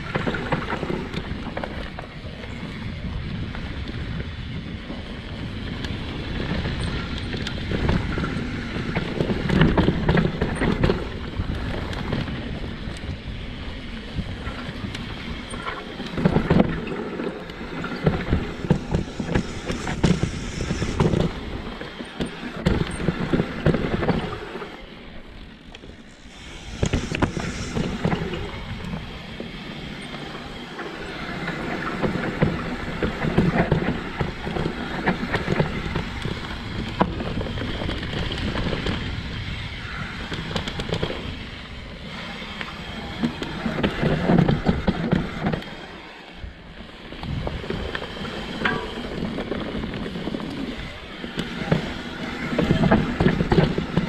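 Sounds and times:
bike rattling and knocking: 0.0s - 13.2s, 52.5s - 54.0s
bike tyres rolling on dirt: 0.0s - 54.0s
wind on microphone: 17.6s - 24.4s, 26.2s - 30.0s, 46.4s - 54.0s.

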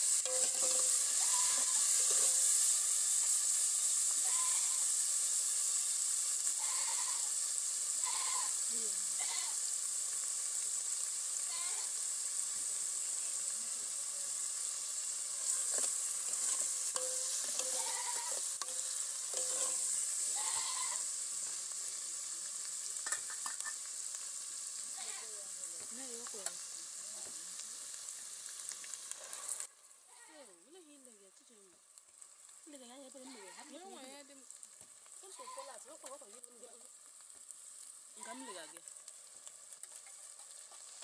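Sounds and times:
soup sizzling and bubbling in a pot: 0.0s - 41.0s
wood fire crackling: 0.0s - 41.0s
goats bleating: 6.6s - 7.3s, 17.6s - 18.4s, 20.3s - 21.0s.

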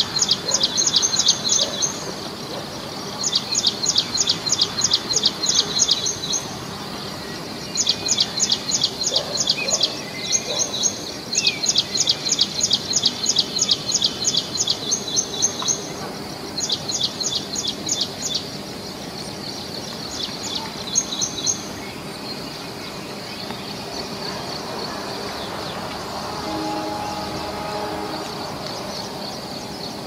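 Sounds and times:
outdoor background hiss: 0.0s - 30.0s
songbird chirping: 16.6s - 30.0s.

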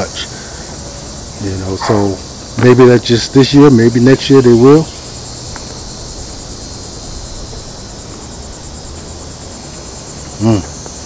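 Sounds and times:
insects chirping: 0.0s - 11.0s
man's short vocal sound: 10.4s - 10.8s.

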